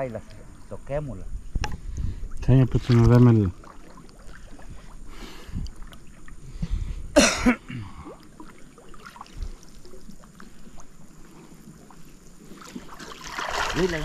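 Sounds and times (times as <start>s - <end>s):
river water trickling: 0.0s - 14.0s
man coughing: 7.2s - 8.0s.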